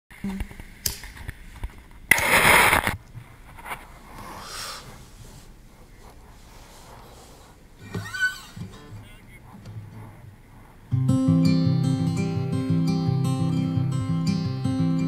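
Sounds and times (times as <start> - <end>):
faint background noise: 0.1 - 15.0
camera scraping in sand: 2.2 - 10.8.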